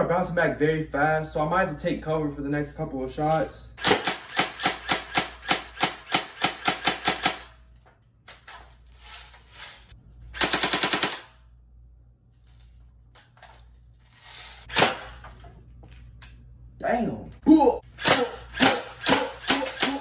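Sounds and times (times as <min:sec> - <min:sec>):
airsoft gun firing bursts: 0:03.8 - 0:07.5, 0:10.4 - 0:11.3.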